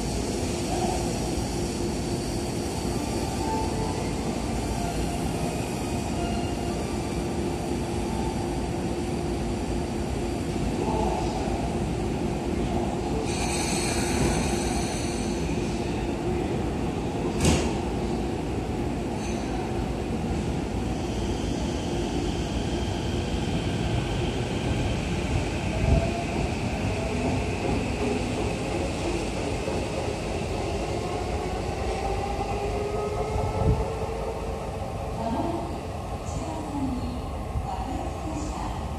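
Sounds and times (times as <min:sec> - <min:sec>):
rumble of train wheels: 0:00.0 - 0:38.9
train doors closing knock: 0:17.3 - 0:17.9.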